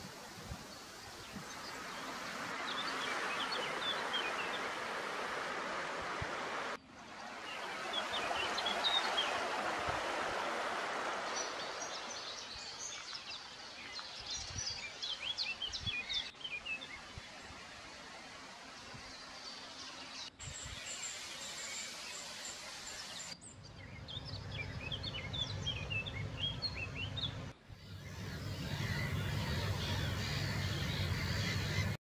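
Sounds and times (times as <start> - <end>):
broad rushing noise: 0.0 - 12.1
small birds chirping: 19.0 - 32.0.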